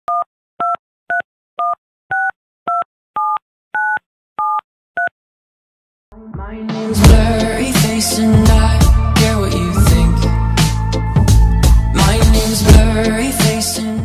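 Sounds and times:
telephone keypad beeps: 0:00.1 - 0:05.1
music: 0:06.1 - 0:14.0.

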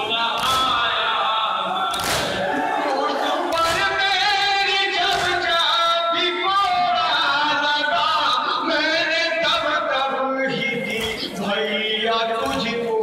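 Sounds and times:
men chanting in unison: 0:00.0 - 0:13.0
hands thumping chests: 0:05.0 - 0:05.6.

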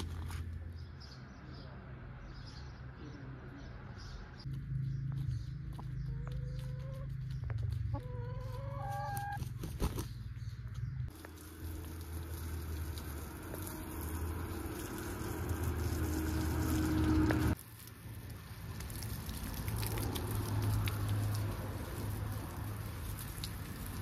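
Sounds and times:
hens clucking: 0:06.0 - 0:10.0.

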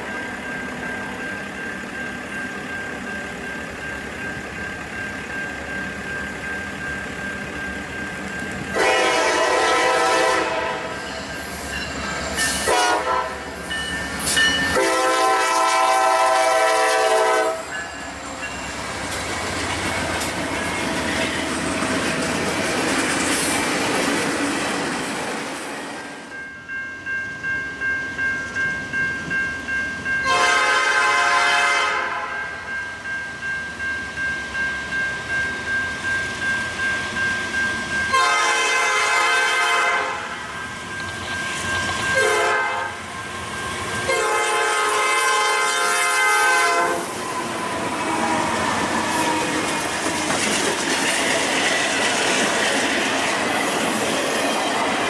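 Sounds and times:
passing train clattering: 0:00.0 - 0:55.0
locomotive air horn blasts: 0:08.7 - 0:11.0, 0:12.6 - 0:13.6, 0:14.7 - 0:17.8, 0:30.2 - 0:32.6, 0:38.1 - 0:40.4, 0:42.2 - 0:43.0, 0:44.0 - 0:47.2.

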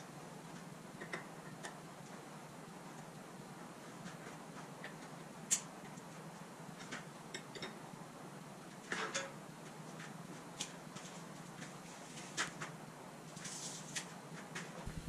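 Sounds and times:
steady low hum: 0:14.2 - 0:15.0.

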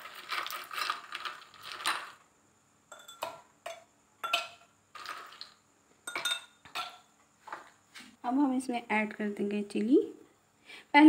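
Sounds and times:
ice cubes clinking: 0:00.0 - 0:02.2, 0:04.2 - 0:07.0.

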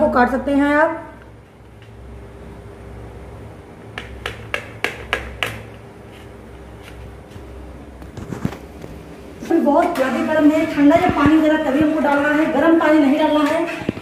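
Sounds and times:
knife tapping on paper plate: 0:04.0 - 0:05.7.

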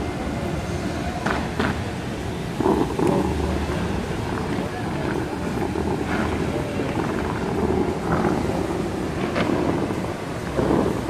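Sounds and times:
fountain water jets spraying: 0:00.0 - 0:11.0
wind buffeting microphone: 0:00.0 - 0:11.0.

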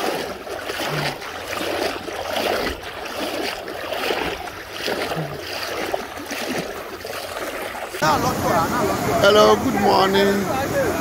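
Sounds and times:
legs wading through water: 0:00.0 - 0:11.0.

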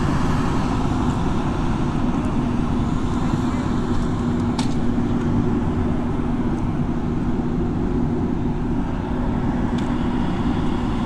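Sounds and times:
constant low hum: 0:00.0 - 0:11.0
road traffic rumble: 0:00.0 - 0:11.0.

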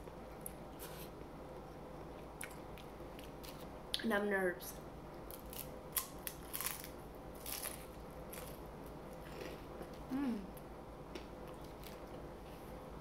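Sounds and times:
crunchy chewing: 0:05.3 - 0:10.0.

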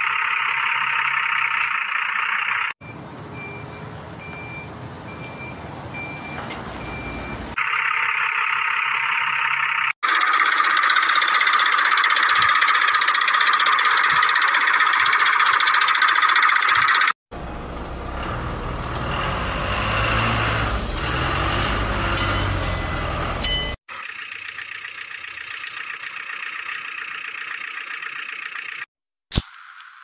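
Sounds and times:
small motors running: 0:08.8 - 0:17.2, 0:24.0 - 0:30.0.

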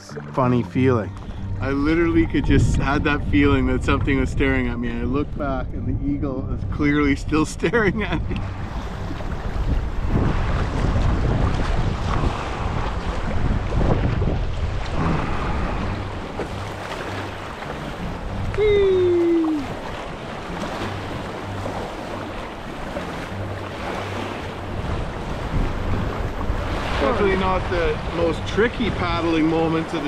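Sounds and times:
wind buffeting the microphone: 0:01.0 - 0:30.0
river water rushing through rapids: 0:14.9 - 0:28.1.

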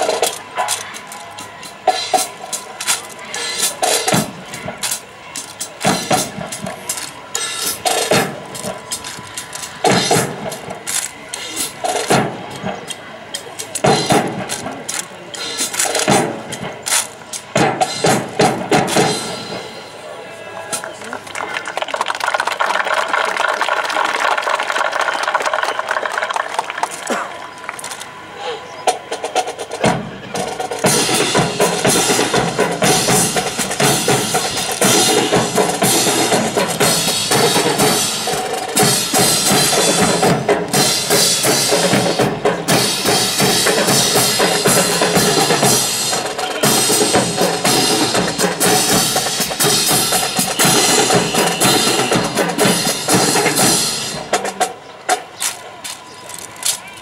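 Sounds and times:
drums beating a cadence: 0:00.0 - 0:20.0, 0:28.9 - 0:56.0
crowd applauding: 0:20.5 - 0:28.3.

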